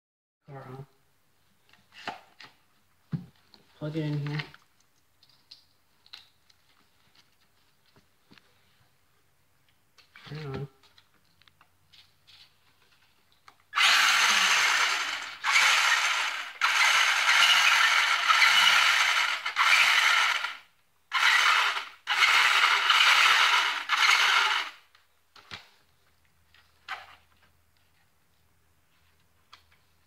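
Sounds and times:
toy car motor whirring: 0:13.8 - 0:24.8.

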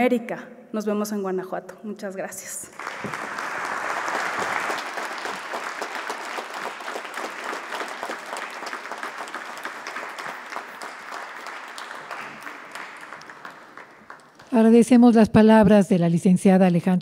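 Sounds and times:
audience applause: 0:02.7 - 0:14.6.

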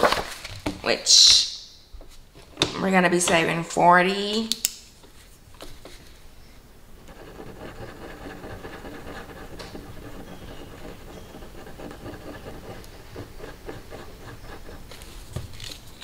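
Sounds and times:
marker scribbling on paper: 0:07.1 - 0:15.2.

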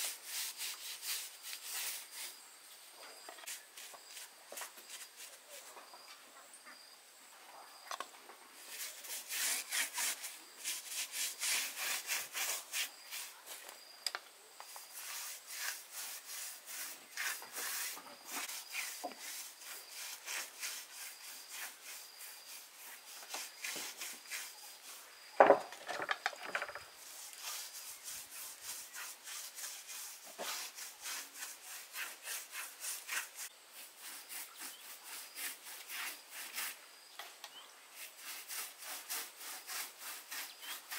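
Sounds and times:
hand saw cutting wood: 0:00.0 - 0:02.3, 0:08.6 - 0:12.9, 0:15.0 - 0:24.6, 0:26.7 - 0:36.8, 0:38.0 - 0:40.9.

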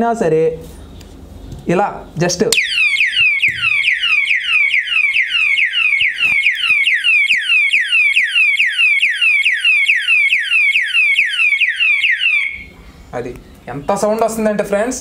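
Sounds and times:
alarm siren wailing: 0:02.6 - 0:12.8.

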